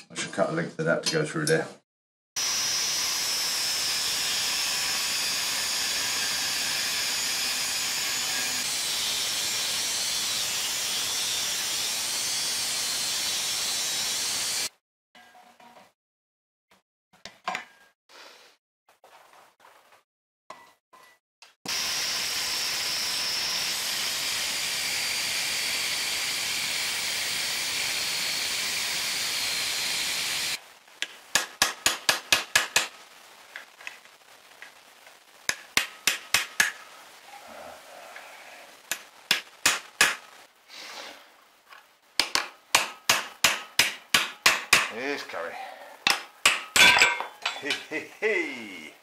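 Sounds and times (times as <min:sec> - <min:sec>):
angle grinder cutting steel: 0:02.4 - 0:14.7, 0:21.7 - 0:30.6, 0:43.4 - 0:48.8.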